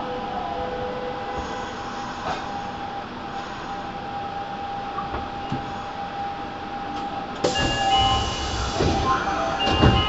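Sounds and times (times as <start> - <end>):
stationary train hum and whine: 0.0 - 10.0.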